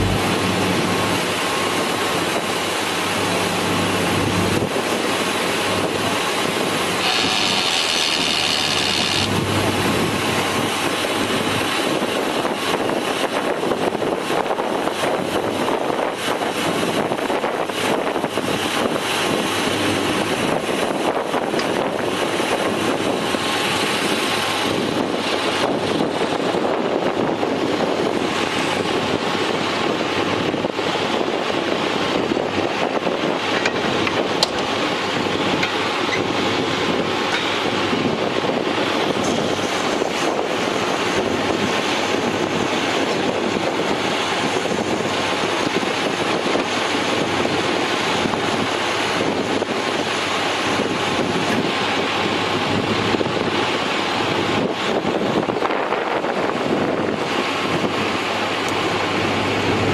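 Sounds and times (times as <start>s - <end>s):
diesel truck engine running: 0.0s - 10.7s.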